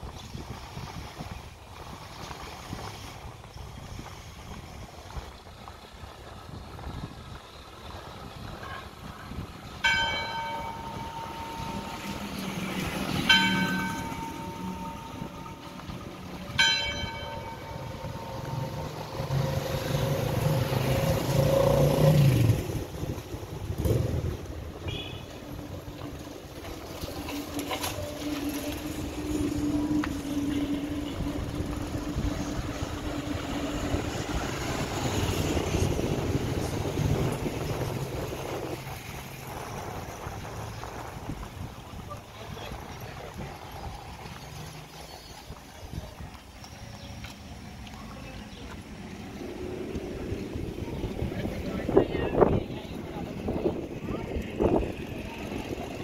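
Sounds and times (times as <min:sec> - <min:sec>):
scooters and motorcycles passing: 0:06.1 - 0:56.0
church bell tolling: 0:09.8 - 0:20.0
motorcycle engine passing: 0:10.6 - 0:25.2.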